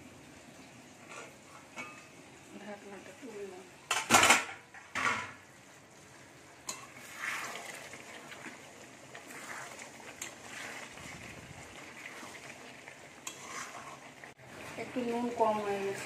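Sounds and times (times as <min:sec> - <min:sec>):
spoon stirring thick curry: 0:06.7 - 0:14.3.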